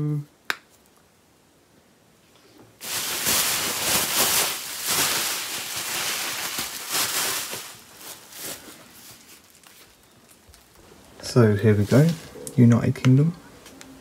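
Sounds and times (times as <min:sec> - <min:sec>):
bubble wrap crinkling: 0:02.8 - 0:12.4.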